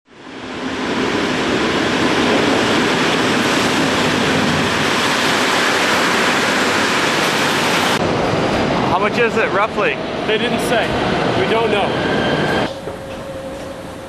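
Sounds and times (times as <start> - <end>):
train rushing into station: 0.2 - 14.0.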